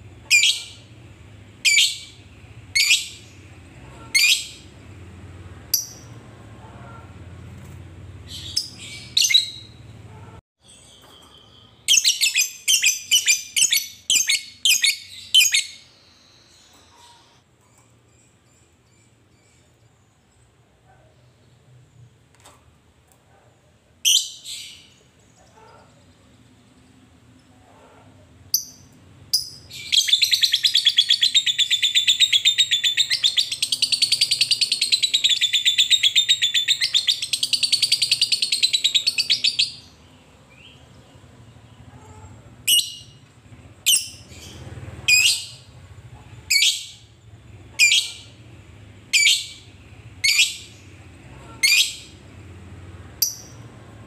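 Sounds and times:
shrill bird calls: 29.6s - 40.0s, 43.9s - 45.7s, 47.7s - 48.4s, 49.2s - 50.8s.

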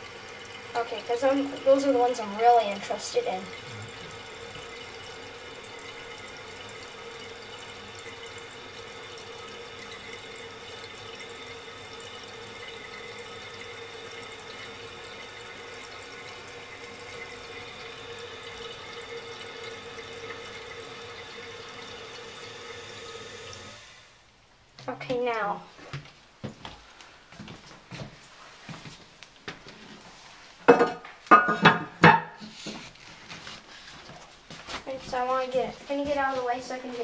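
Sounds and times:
toilet tank refilling hiss: 0.0s - 24.2s.

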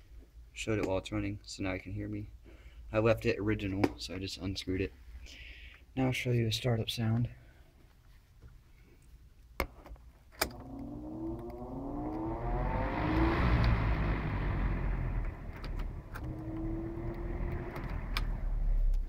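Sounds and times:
fan motor humming: 10.4s - 19.0s.

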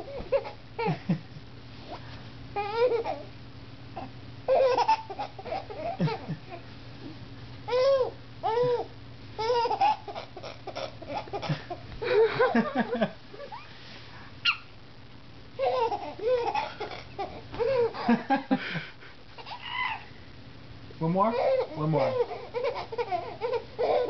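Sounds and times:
baby giggling: 2.6s - 3.3s, 4.0s - 6.6s, 7.7s - 12.3s, 15.6s - 18.0s, 21.3s - 24.0s.

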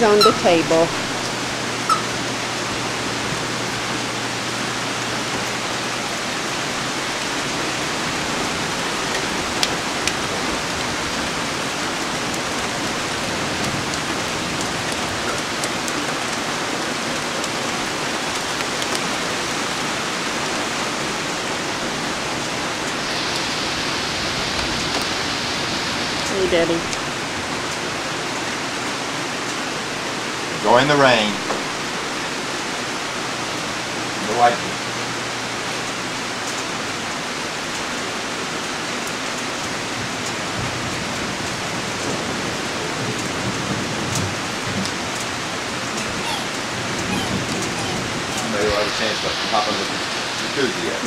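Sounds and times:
heavy rain: 0.0s - 51.0s.

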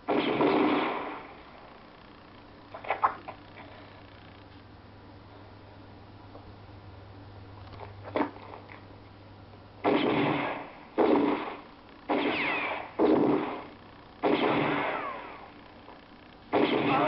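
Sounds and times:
rifle gunshots: 0.0s - 1.4s, 9.8s - 15.5s, 16.5s - 17.0s
ricochet whine: 0.0s - 1.9s, 9.8s - 17.0s.

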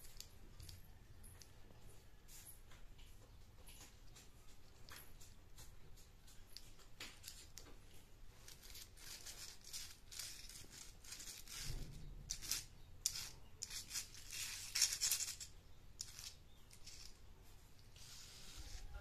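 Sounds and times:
toy car scraping on concrete: 8.4s - 17.2s, 17.8s - 19.0s.

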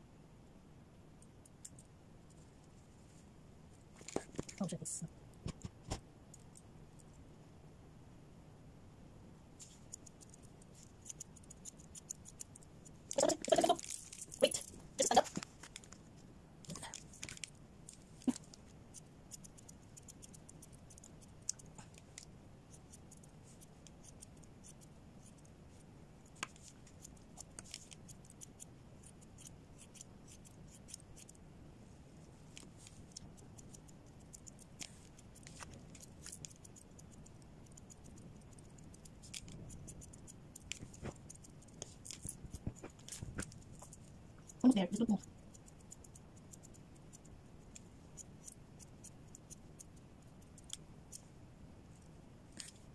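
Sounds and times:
scissors snipping fur: 9.6s - 15.9s, 16.7s - 25.5s, 26.2s - 31.4s, 32.5s - 51.2s.

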